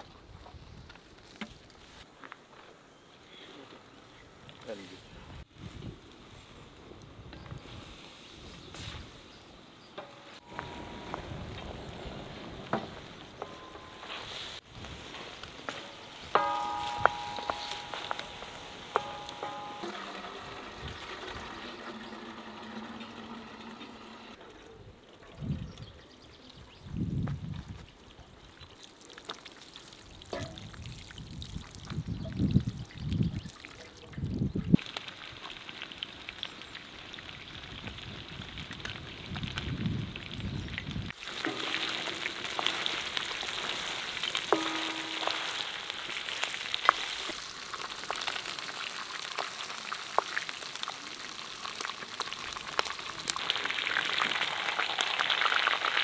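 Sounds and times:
crackles of frying: 0:03.8 - 0:24.4, 0:26.3 - 0:56.0
water pouring from watering can: 0:19.9 - 0:24.3, 0:41.2 - 0:56.0
meat sizzling in hot oil: 0:34.8 - 0:56.0.

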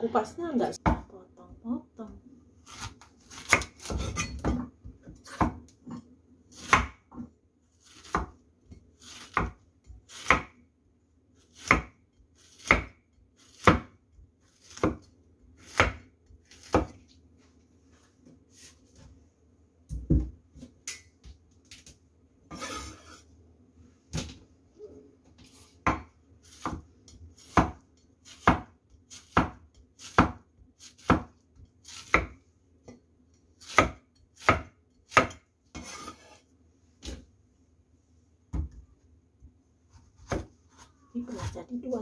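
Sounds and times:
knife chopping on wooden board: 0:02.7 - 0:05.8, 0:06.5 - 0:08.4, 0:09.0 - 0:10.6, 0:11.5 - 0:14.0, 0:14.6 - 0:17.0, 0:25.5 - 0:33.0, 0:33.6 - 0:36.4, 0:39.9 - 0:41.6
knife scraping board: 0:22.5 - 0:23.3, 0:33.6 - 0:36.5.

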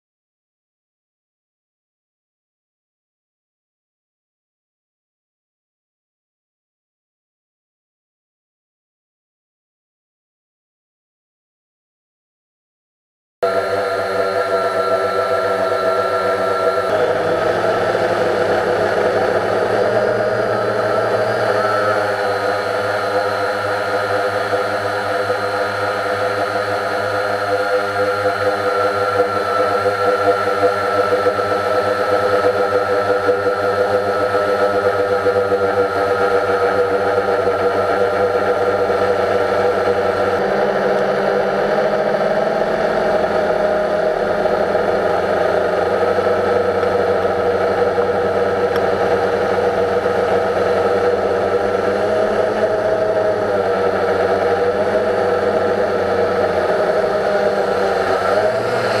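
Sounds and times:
drone propellers whirring: 0:13.4 - 0:59.0.

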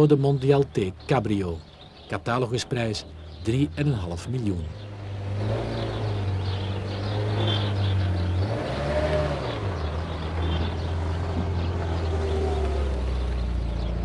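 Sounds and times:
car engine pulling away: 0:03.1 - 0:14.0.

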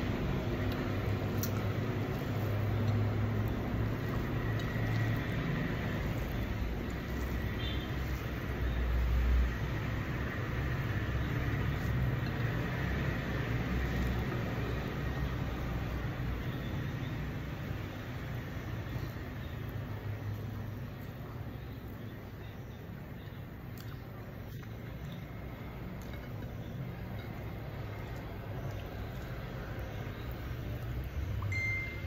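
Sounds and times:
low rumbling background noise: 0:00.0 - 0:32.0.

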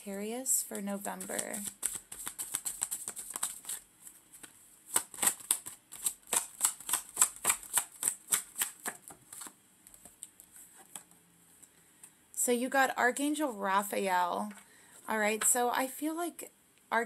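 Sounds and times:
cards being shuffled by hand: 0:00.8 - 0:11.1.

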